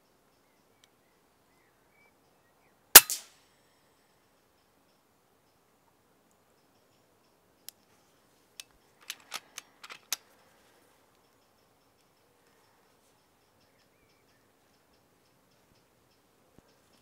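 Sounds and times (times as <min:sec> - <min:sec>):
air rifle lever clicks: 0:08.6 - 0:10.2.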